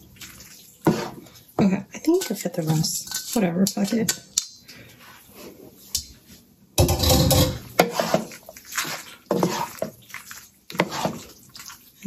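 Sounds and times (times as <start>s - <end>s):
wooden spoon stirring pasta in sauce: 0.0s - 4.0s, 7.3s - 12.0s.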